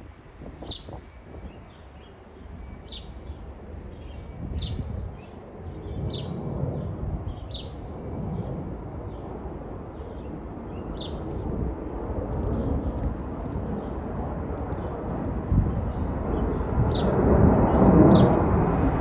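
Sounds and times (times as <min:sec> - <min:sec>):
jet airliner rumble overhead: 0:00.0 - 0:19.0.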